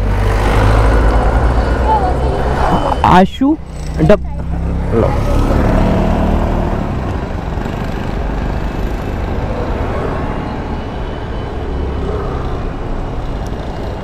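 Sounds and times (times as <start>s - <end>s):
street traffic: 0.0s - 14.0s.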